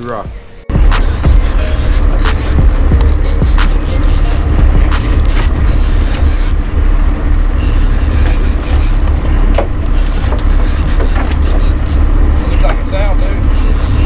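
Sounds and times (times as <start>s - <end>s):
fishing reel whirring: 0.8s - 12.6s, 13.4s - 14.0s.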